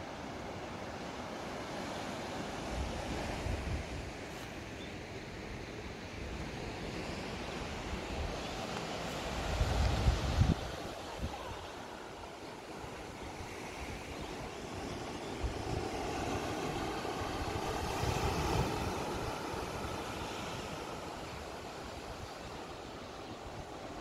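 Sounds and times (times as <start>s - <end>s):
wind buffeting microphone: 6.5s - 22.4s.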